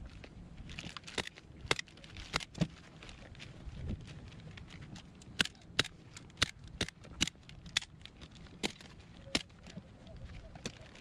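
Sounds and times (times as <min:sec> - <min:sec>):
sharp clicks of hand tools: 0:05.3 - 0:09.5.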